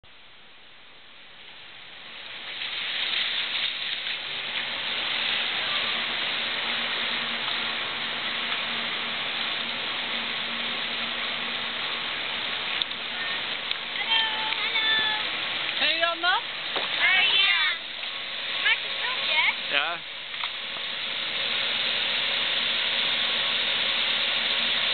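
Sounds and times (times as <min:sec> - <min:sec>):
water rushing along a channel: 0:00.1 - 0:24.9.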